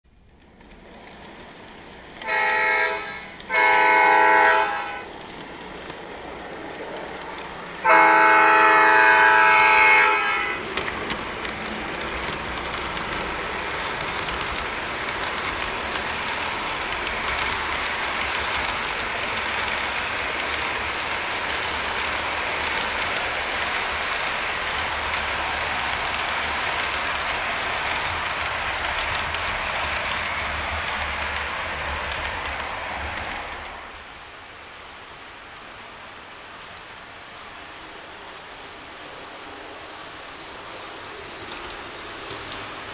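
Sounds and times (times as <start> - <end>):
model train running: 0.1 - 42.9
model train horn blast: 2.2 - 5.1, 7.8 - 10.6.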